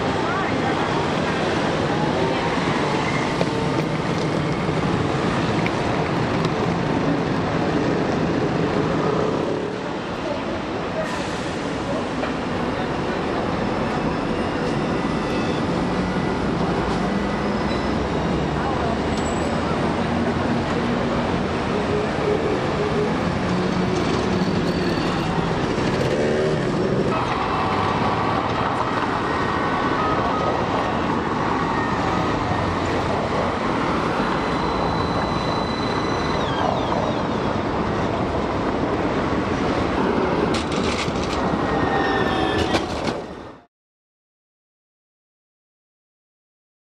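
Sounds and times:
street traffic: 0.0 - 43.7
tram passing on track: 0.0 - 43.7
sharp clicks of tram wheels: 40.4 - 41.8.

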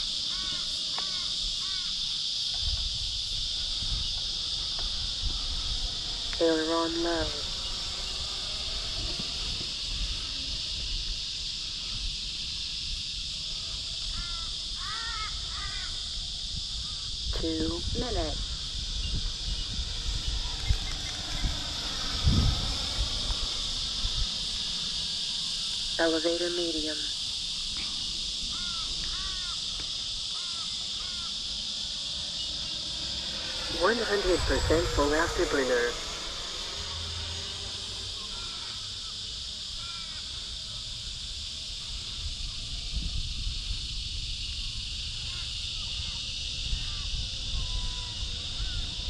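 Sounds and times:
high hiss: 0.0 - 49.0
crow cawing: 0.2 - 2.1, 14.1 - 16.0, 28.5 - 32.8, 37.7 - 40.4
wind rumble: 1.4 - 49.0
low rumble: 16.6 - 25.6, 31.4 - 39.4
bird calling: 28.4 - 40.4.

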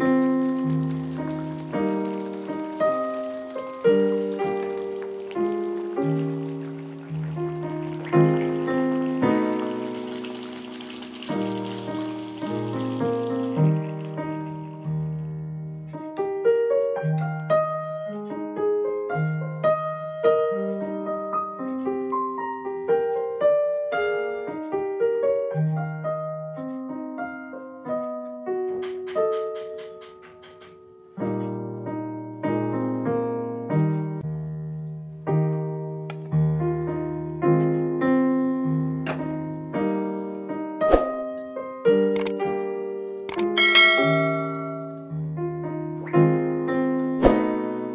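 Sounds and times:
piano music: 0.0 - 47.9
sharp clicks: 42.2 - 42.4, 43.3 - 43.6.

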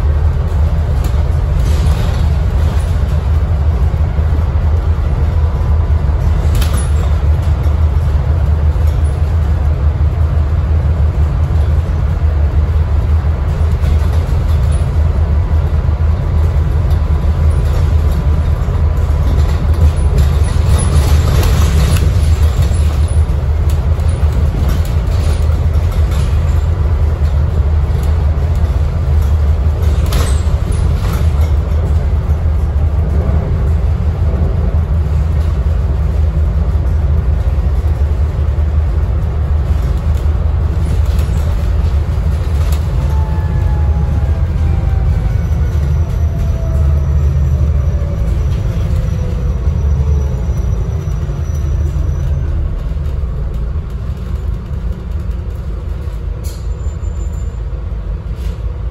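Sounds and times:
bus diesel engine drone: 0.0 - 58.9
road noise: 0.0 - 58.9
body rattles and clicks: 12.7 - 43.2, 44.0 - 56.7.

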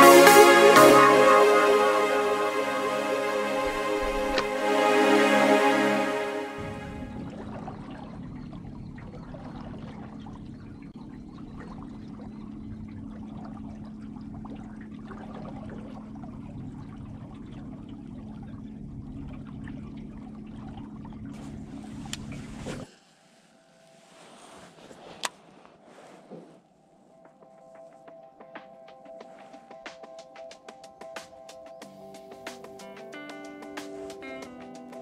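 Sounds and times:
low hum: 0.0 - 22.9
water lapping against boat hull: 7.1 - 22.9.

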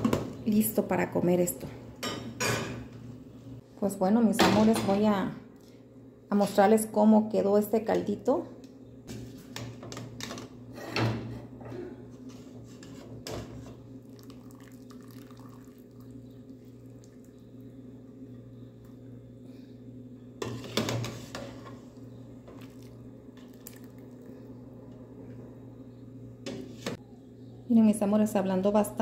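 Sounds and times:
steady low hum: 0.2 - 29.0
broth sloshing and dripping: 14.0 - 17.6, 22.5 - 24.4.

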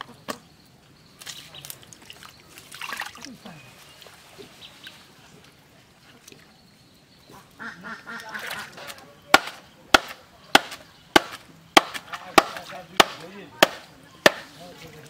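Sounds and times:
wooden club pounding stake: 8.8 - 14.5.

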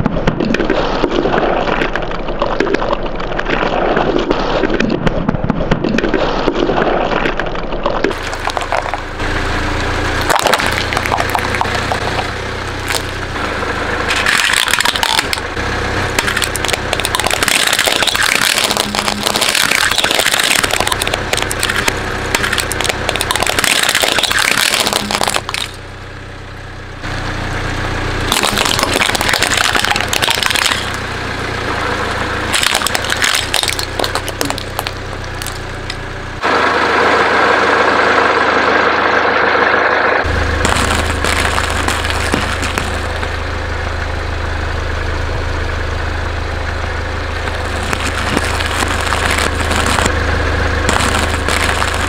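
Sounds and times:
tyres crushing objects: 0.0 - 9.3, 10.1 - 25.8, 28.2 - 31.1, 32.4 - 36.0, 40.2 - 43.4, 47.4 - 52.0
car engine running: 7.8 - 52.0.

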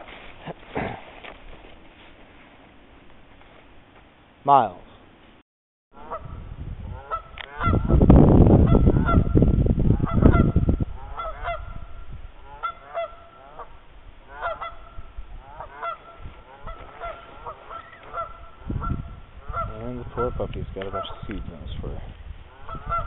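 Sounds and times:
low rumbling on microphone: 6.1 - 12.6, 18.2 - 23.0
geese honking: 6.9 - 7.9, 10.0 - 21.5, 22.5 - 23.0.

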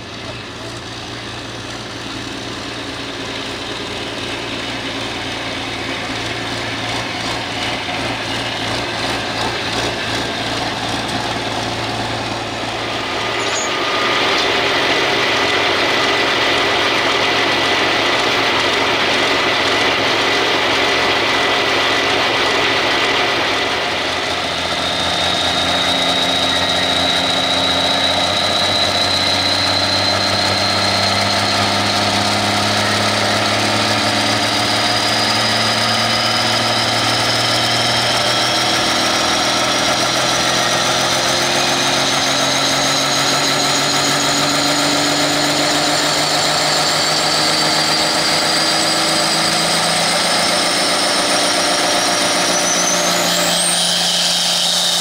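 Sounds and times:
diesel engine idling: 0.0 - 55.0
high whine: 0.0 - 55.0.

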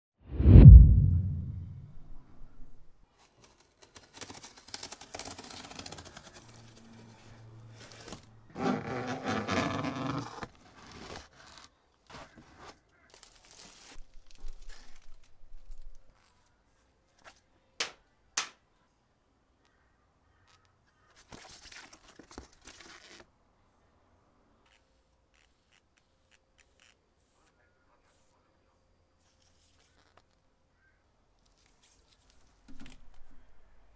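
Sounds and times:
paper rustling: 3.1 - 8.3, 10.2 - 16.5, 20.5 - 23.3, 31.4 - 33.4
cardboard and plastic rustling: 3.1 - 8.4, 10.2 - 16.5, 21.2 - 23.3
packing tape tearing: 3.2 - 6.8, 7.8 - 16.0.

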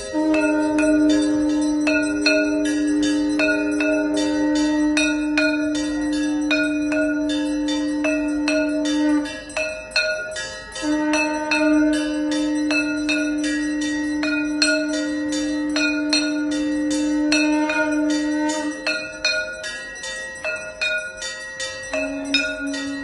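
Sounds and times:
held low tone: 0.0 - 9.4
temple bells ringing: 0.0 - 23.0.

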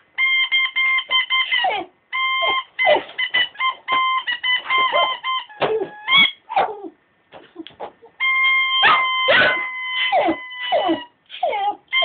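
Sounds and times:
dog howling and whining: 1.6 - 3.4, 4.6 - 7.0, 8.4 - 12.0.

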